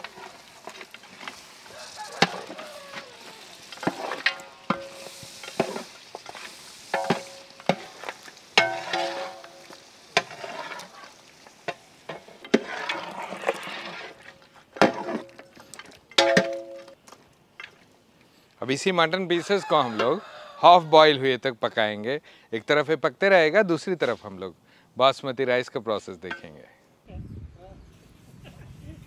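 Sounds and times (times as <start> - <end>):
ladle scraping metal pot: 0.0 - 11.2, 12.1 - 16.6
meat sizzling: 0.0 - 16.2.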